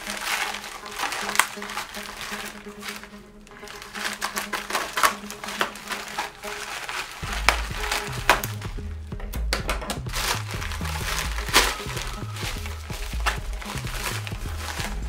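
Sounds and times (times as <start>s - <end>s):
plastic bag crinkling: 0.0s - 9.0s, 9.8s - 15.0s
background music with bass: 0.0s - 15.0s.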